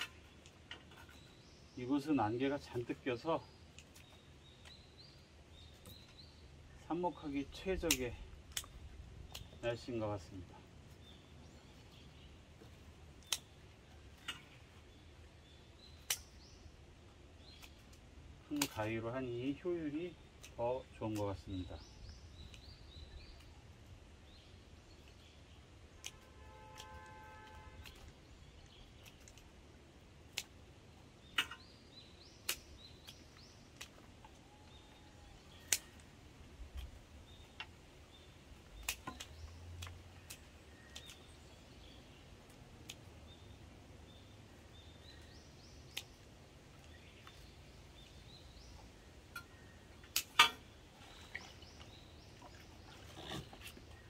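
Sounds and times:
scissors snipping stems: 13.2s - 13.5s, 16.0s - 16.4s, 27.8s - 29.5s, 30.2s - 30.6s, 35.5s - 36.1s, 38.7s - 41.3s, 49.3s - 50.6s.

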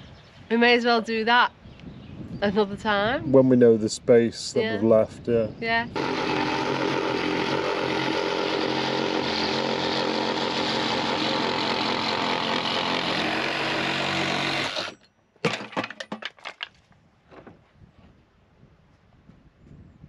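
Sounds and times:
electric power tool running: 5.9s - 15.0s.

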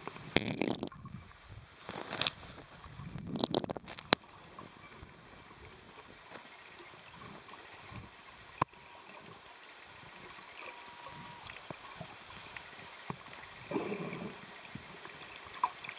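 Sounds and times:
clicks and crackles: 0.0s - 1.1s, 1.8s - 4.4s, 7.8s - 8.8s
underwater hiss: 7.0s - 15.9s.

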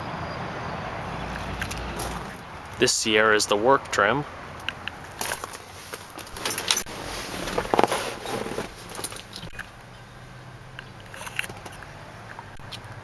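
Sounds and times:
clothing rustling and scraping: 5.2s - 9.5s.

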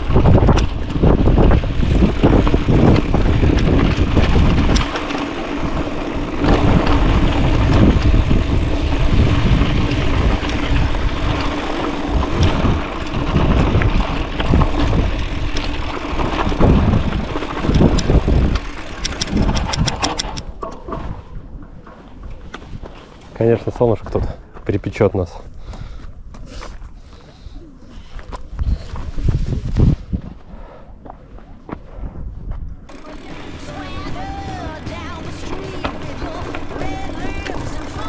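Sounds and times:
mountain bike rattling and knocking: 0.0s - 22.0s, 32.9s - 38.0s
wind buffeting microphone: 0.0s - 22.9s, 28.2s - 38.0s.

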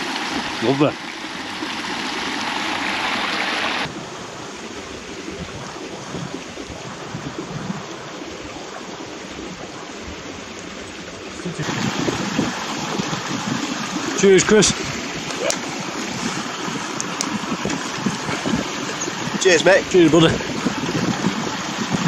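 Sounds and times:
running water rushing: 0.0s - 22.0s.

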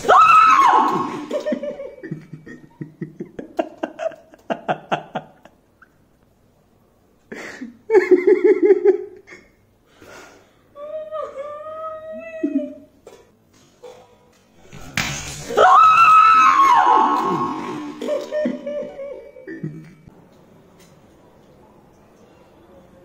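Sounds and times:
woman screaming: 0.0s - 1.4s, 15.5s - 18.0s
laughter: 1.0s - 6.0s, 7.3s - 9.5s, 17.4s - 20.1s.

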